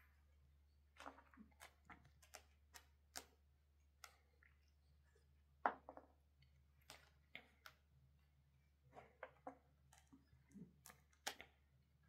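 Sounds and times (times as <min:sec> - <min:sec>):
cat chewing crunchy fruit: 0:00.9 - 0:03.4.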